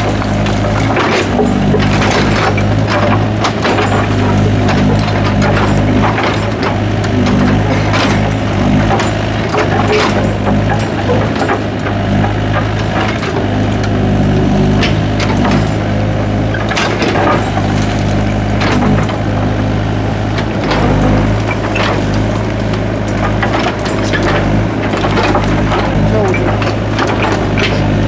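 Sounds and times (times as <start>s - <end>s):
excavator diesel engine drone: 0.0s - 28.0s.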